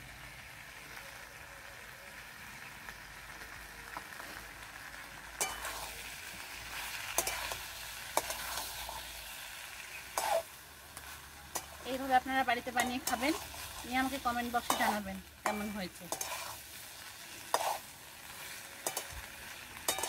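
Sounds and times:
curry sizzling: 0.0s - 20.0s
metal spatula scraping pan: 5.4s - 6.0s, 7.0s - 9.1s, 10.0s - 20.0s.

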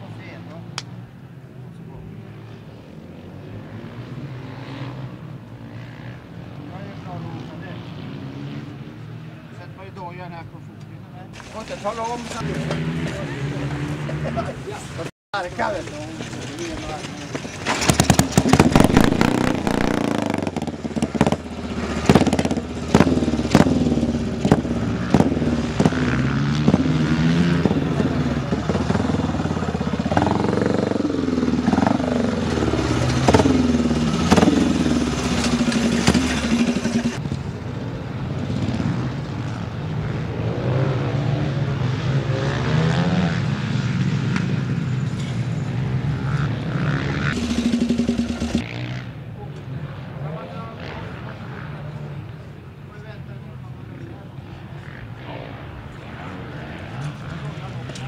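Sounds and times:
motorcycle engine revving: 2.0s - 9.5s, 11.3s - 52.4s
sharp engine bangs: 16.9s - 37.2s, 47.2s - 48.7s.

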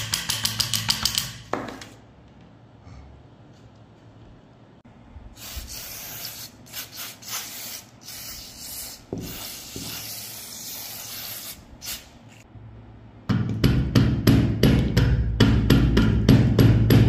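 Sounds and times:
aerosol spray hissing: 5.4s - 12.2s.

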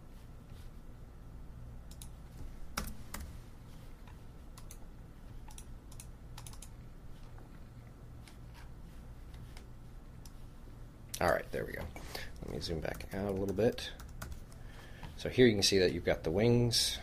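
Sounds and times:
faint low hum: 0.0s - 17.0s
keyboard and mouse clicks: 1.9s - 3.3s, 4.0s - 4.8s, 5.4s - 6.7s.

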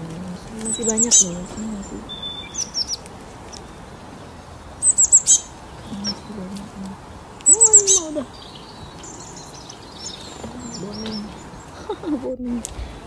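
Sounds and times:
lower bird call: 0.6s - 6.8s, 7.4s - 12.0s
small bird calling high notes: 0.7s - 3.8s, 4.8s - 6.4s, 7.4s - 11.6s.

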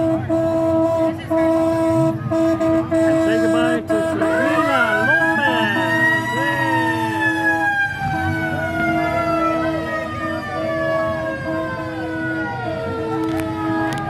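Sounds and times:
siren winding down: 4.2s - 14.0s.

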